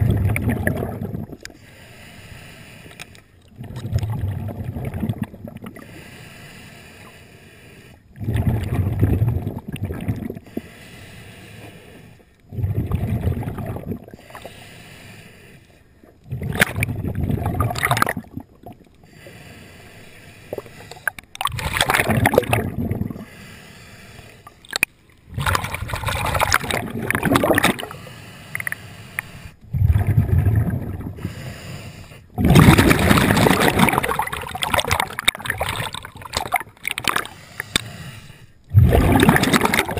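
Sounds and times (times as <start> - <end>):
exhaled bubbles: 0.0 - 1.6, 3.5 - 5.9, 8.1 - 10.6, 12.5 - 14.4, 16.2 - 19.0, 20.5 - 23.3, 24.6 - 28.8, 29.6 - 31.4, 32.3 - 37.8, 38.7 - 39.9
scuba regulator breathing: 1.4 - 3.4, 5.8 - 8.2, 10.3 - 12.5, 14.1 - 16.1, 19.0 - 21.3, 22.8 - 24.8, 26.1 - 33.3, 37.0 - 39.9.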